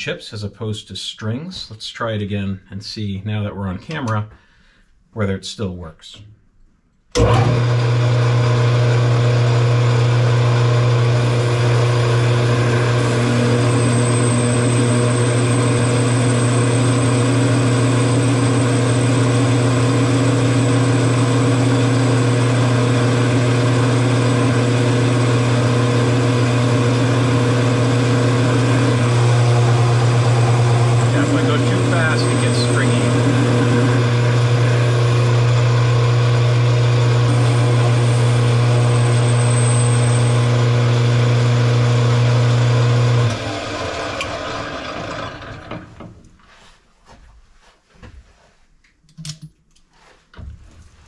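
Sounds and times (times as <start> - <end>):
high whine of cutting tool: 7.2 - 45.4
metal lathe motor humming: 7.2 - 46.0.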